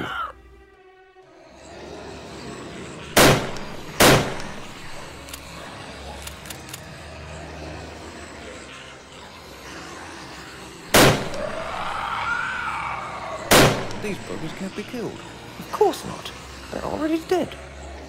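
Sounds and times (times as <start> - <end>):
low steady background: 0.0 - 18.0
gunshots: 3.2 - 4.9, 10.9 - 11.6, 13.5 - 14.3.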